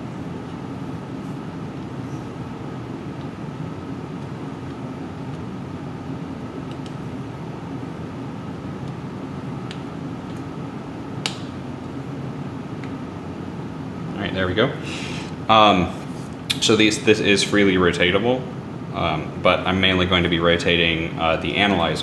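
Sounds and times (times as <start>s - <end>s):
ventilation hum: 0.0s - 22.0s.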